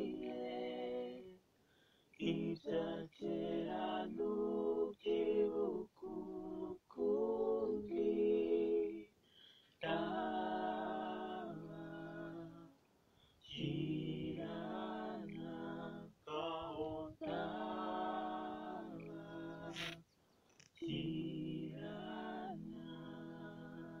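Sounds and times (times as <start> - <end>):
man singing a cappella harmony: 0.0 - 1.4, 2.2 - 9.1, 13.5 - 20.0, 20.8 - 24.0.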